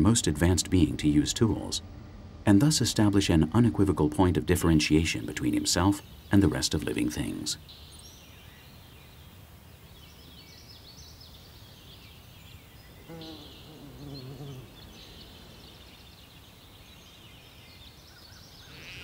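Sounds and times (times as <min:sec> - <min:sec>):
bird chirps: 0:05.9 - 0:19.0.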